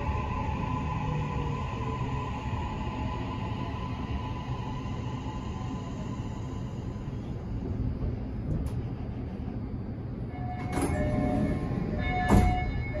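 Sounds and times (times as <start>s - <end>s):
train running rumble: 0.0s - 13.0s
door gear clunks: 12.2s - 12.9s.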